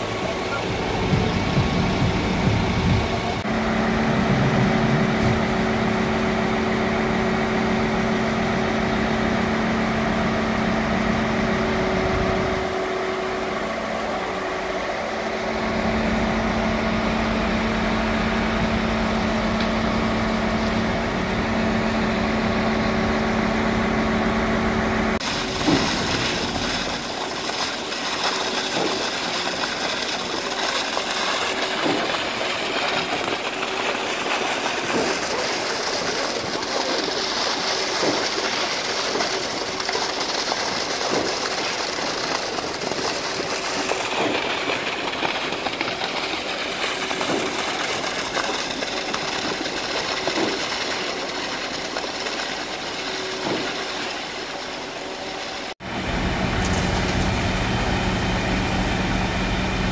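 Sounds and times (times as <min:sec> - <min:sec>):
diesel truck engines humming: 0:00.0 - 0:27.4, 0:53.2 - 0:59.9.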